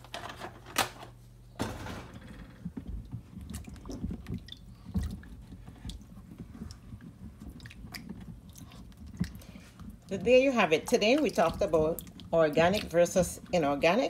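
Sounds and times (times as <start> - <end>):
hands rubbing apples in water: 2.7 - 14.0
small water splashes: 3.3 - 13.7.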